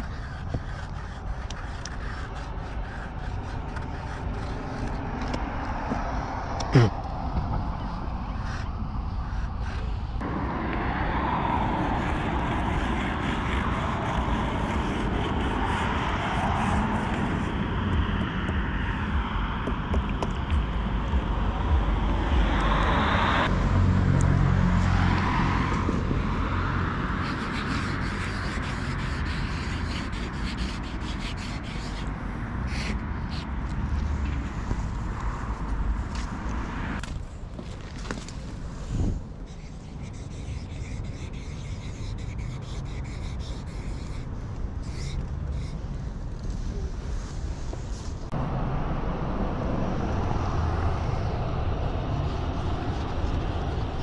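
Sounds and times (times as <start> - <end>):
marker scratching on metal: 0.0 - 5.4, 11.8 - 19.0, 25.1 - 36.5, 38.8 - 48.1
road traffic noise: 0.0 - 54.0
low rumble: 9.5 - 29.8, 46.8 - 54.0
car passing: 10.2 - 44.0, 46.7 - 54.0
low engine hum: 10.2 - 54.0.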